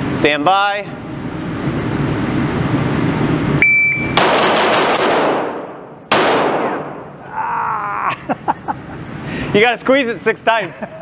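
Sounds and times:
shot timer beep: 0:03.6 - 0:04.2
pistol shots: 0:04.2 - 0:07.1.

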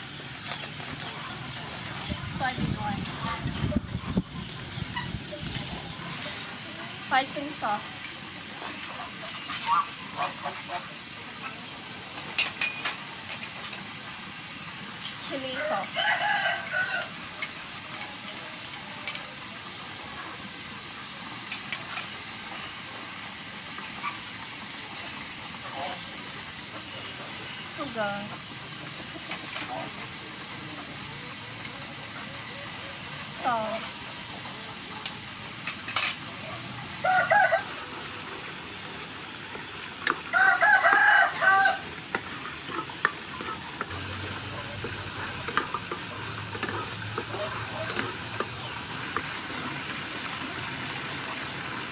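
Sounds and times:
sauce sizzling in a frying pan: 0:04.4 - 0:51.9
rooster crowing: 0:15.6 - 0:17.2, 0:37.0 - 0:37.9, 0:40.3 - 0:41.9.

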